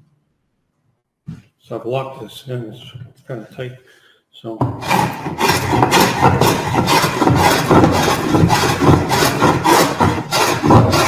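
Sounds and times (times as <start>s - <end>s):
scrub plane rasping across board: 4.7s - 11.0s.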